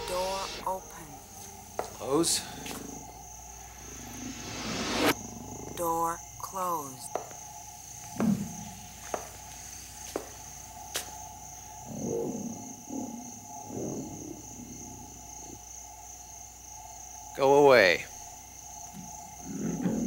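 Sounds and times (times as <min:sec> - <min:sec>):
rough low sounds: 0:00.0 - 0:06.4
insects chirring: 0:00.0 - 0:20.0.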